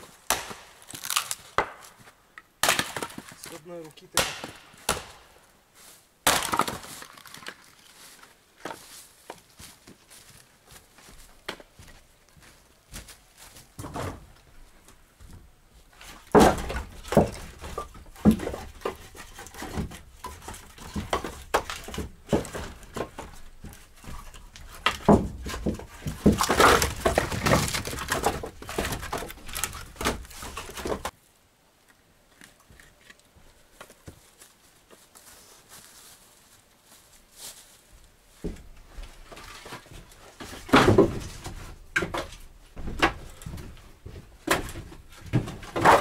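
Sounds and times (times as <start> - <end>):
irregular knocks and thumps: 16.2 - 31.1.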